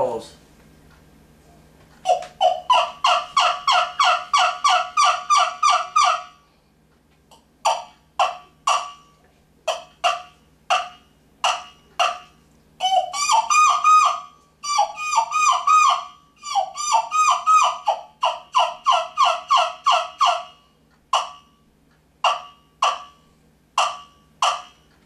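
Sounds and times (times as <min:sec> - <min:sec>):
turkey call clucks: 0:02.0 - 0:06.4, 0:07.6 - 0:21.5, 0:22.2 - 0:23.2, 0:23.8 - 0:24.8
turkey call yelps: 0:02.0 - 0:06.4, 0:07.6 - 0:09.0, 0:09.7 - 0:21.5, 0:22.2 - 0:23.2, 0:23.8 - 0:24.8.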